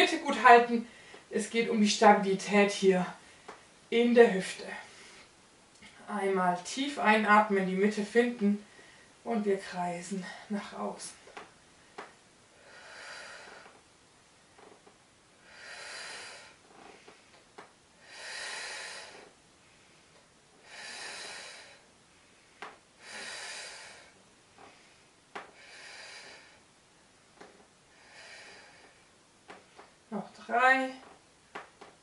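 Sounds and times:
woman breathing heavily: 0.8s - 1.3s, 8.6s - 9.2s, 10.2s - 13.9s, 15.3s - 26.8s, 27.4s - 30.0s.

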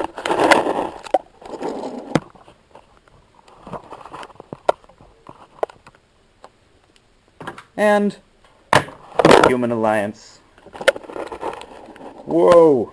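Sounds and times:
toy car handling rustle: 0.0s - 6.0s, 10.6s - 12.8s.

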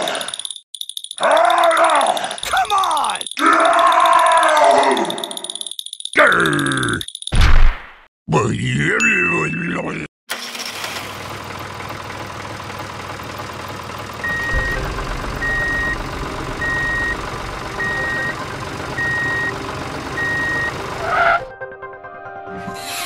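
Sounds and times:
vehicle engine running: 10.7s - 21.5s
reversing alarm beeping: 14.2s - 21.2s
brief loud sound: 14.3s - 18.4s.

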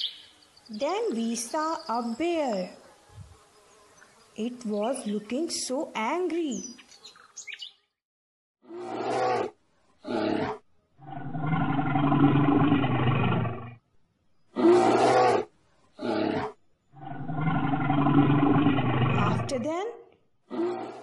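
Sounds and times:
bear roaring: 8.6s - 13.8s, 14.5s - 19.6s, 20.5s - 21.0s
bear growling: 8.7s - 13.8s, 14.5s - 19.6s, 20.4s - 21.0s.

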